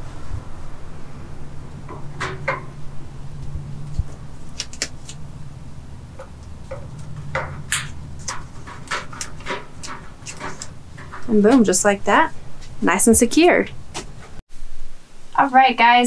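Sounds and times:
steady low hum: 0:00.0 - 0:16.0
plastic pipe fittings clicking: 0:06.2 - 0:11.3.

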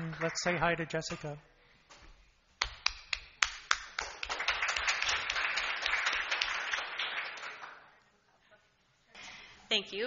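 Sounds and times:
audience applauding: 0:00.0 - 0:01.0, 0:02.6 - 0:08.0.

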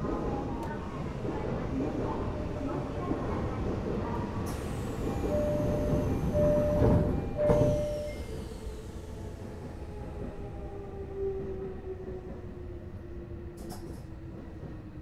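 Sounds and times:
low hum of standing train: 0:00.0 - 0:15.0
train doors thudding shut: 0:04.5 - 0:08.4
electronic warning beeps: 0:05.2 - 0:08.3.

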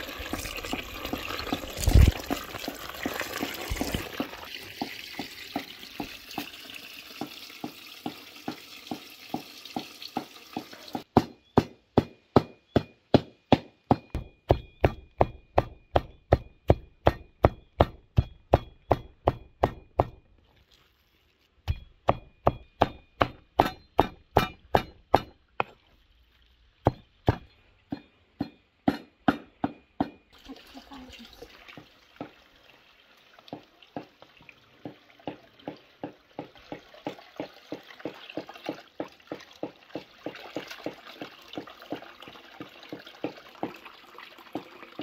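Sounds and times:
cleaver chopping meat on wood: 0:07.6 - 0:20.2, 0:21.7 - 0:25.7, 0:26.9 - 0:30.2.

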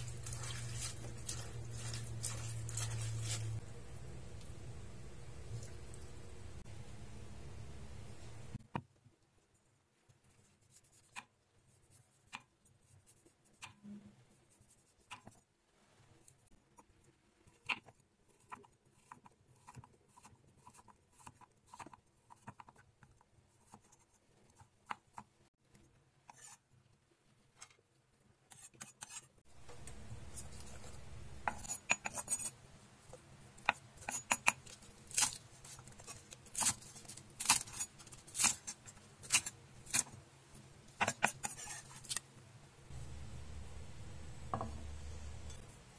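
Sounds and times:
low steady hum: 0:00.0 - 0:08.6, 0:29.5 - 0:33.6, 0:42.5 - 0:45.9.

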